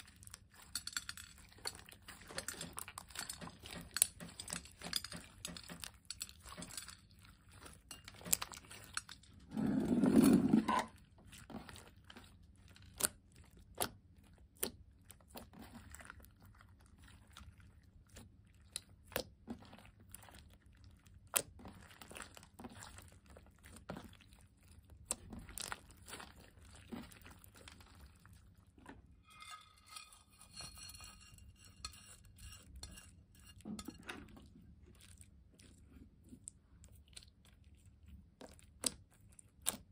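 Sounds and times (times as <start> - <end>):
slime squishing with clicks and pops: 11.0 - 29.0, 34.6 - 39.9.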